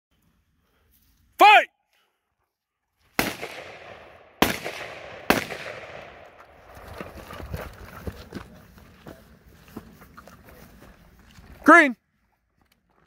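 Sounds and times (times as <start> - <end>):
rifle shots with echo: 3.2 - 6.6.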